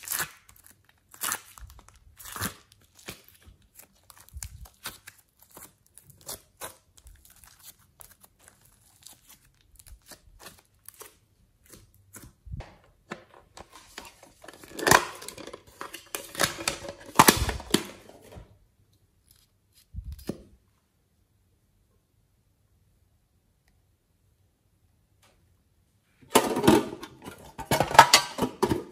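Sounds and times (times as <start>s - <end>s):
clay and slime crackling: 0.0s - 20.6s.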